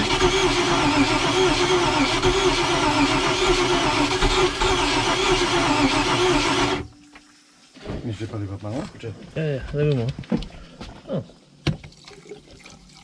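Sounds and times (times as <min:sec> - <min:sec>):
boat engine cranking on starter: 0:00.0 - 0:06.9.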